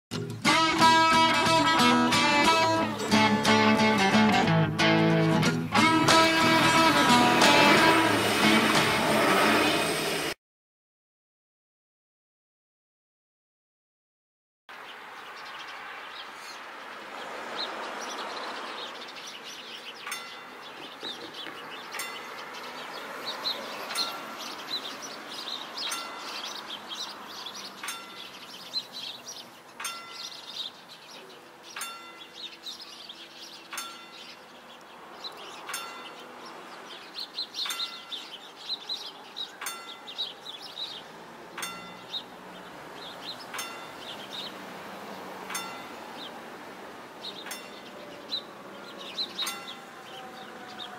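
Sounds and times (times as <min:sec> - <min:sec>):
birds chirping: 0:00.1 - 0:08.7, 0:14.7 - 0:50.9
car driving off: 0:00.3 - 0:10.4, 0:41.0 - 0:50.9
level-crossing bell striking: 0:20.1 - 0:20.8, 0:22.0 - 0:22.4, 0:23.9 - 0:24.6, 0:25.8 - 0:26.8, 0:27.8 - 0:28.4, 0:29.8 - 0:30.7, 0:31.8 - 0:32.5, 0:33.8 - 0:34.4, 0:35.7 - 0:36.3, 0:37.6 - 0:38.4, 0:39.6 - 0:40.6, 0:41.6 - 0:42.3, 0:43.5 - 0:44.2, 0:45.5 - 0:46.1, 0:47.5 - 0:47.9, 0:49.4 - 0:50.6.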